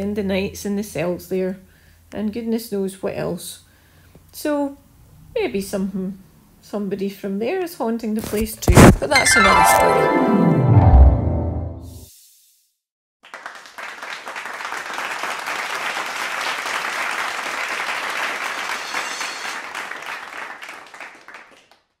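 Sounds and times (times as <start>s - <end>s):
group applauding: 13.2s - 22.0s.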